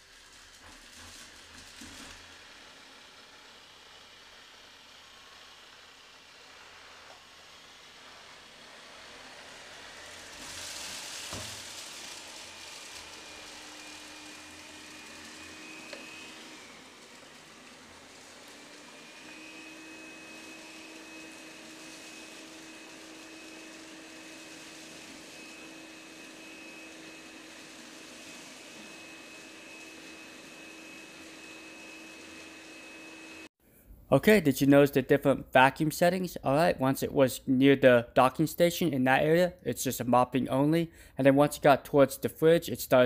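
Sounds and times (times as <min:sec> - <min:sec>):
thin motor whine: 0:01.8 - 0:33.5
robot vacuum suction hiss: 0:06.4 - 0:33.5.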